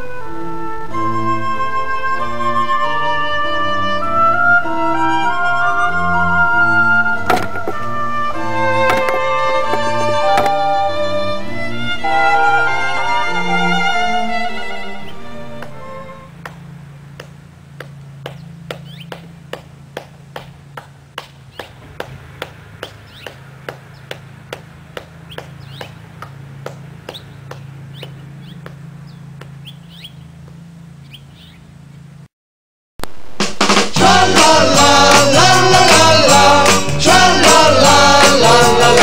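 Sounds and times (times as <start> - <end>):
music: 0.0 - 16.4, 33.2 - 39.0.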